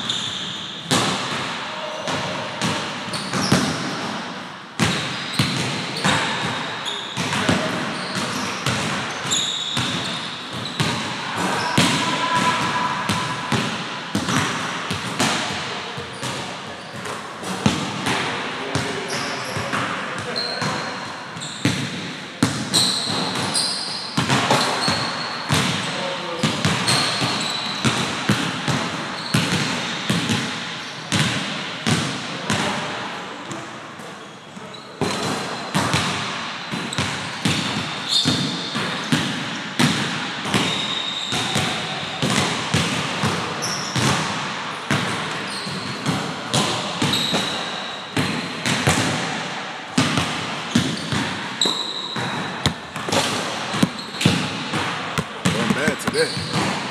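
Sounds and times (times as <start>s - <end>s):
sneakers squeaking on floor: 0.0s - 4.2s, 4.8s - 18.1s, 18.7s - 32.6s, 34.2s - 42.9s, 43.6s - 44.3s, 44.9s - 49.0s, 50.0s - 56.9s
basketballs bouncing on wooden floor: 2.1s - 4.2s, 4.8s - 6.6s, 7.2s - 11.0s, 11.8s - 18.9s, 24.2s - 30.5s, 31.1s - 32.7s, 35.2s - 43.4s, 50.0s - 56.9s.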